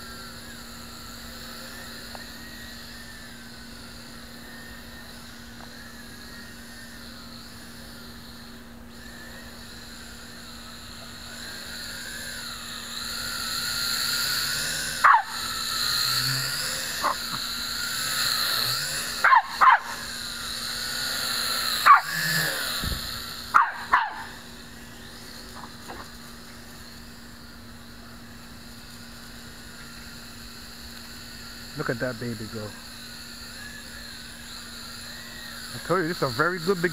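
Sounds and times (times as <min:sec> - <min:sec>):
drone propellers whining: 0:00.0 - 0:36.9
small dog yapping: 0:15.0 - 0:15.4, 0:17.0 - 0:17.4, 0:19.2 - 0:20.0, 0:21.8 - 0:22.2, 0:23.5 - 0:24.4.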